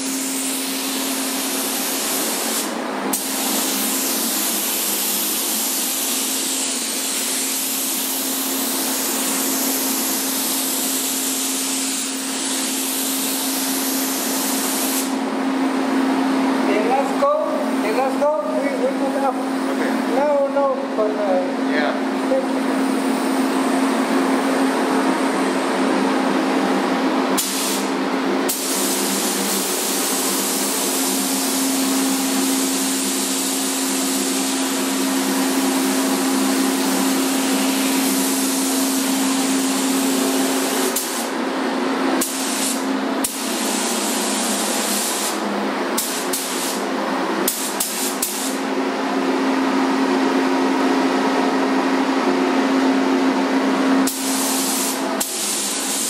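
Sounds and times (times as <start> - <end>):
paint spray gun hissing: 0.0 - 15.2, 27.4 - 27.9, 28.5 - 35.1, 35.7 - 41.4, 42.2 - 45.4, 46.0 - 46.8, 47.4 - 48.6, 54.0 - 56.0.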